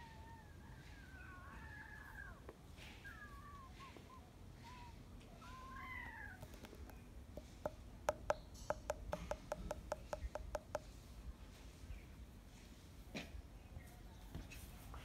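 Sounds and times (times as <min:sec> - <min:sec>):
sharp chirping clicks: 0:05.7 - 0:10.9.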